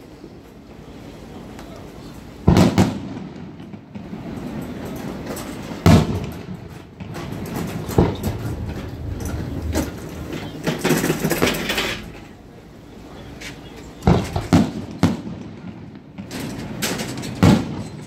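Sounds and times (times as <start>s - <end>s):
fireworks rumble and crackle: 0.0s - 18.0s
fireworks bursting: 6.9s - 12.9s.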